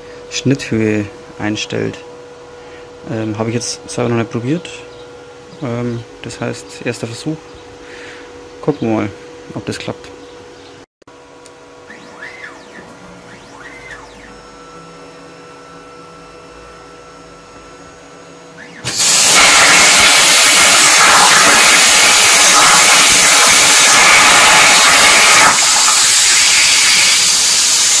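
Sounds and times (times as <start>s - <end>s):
stepper motors whining: 11.8s - 28.0s
plasma torch cutting steel hiss: 18.8s - 28.0s.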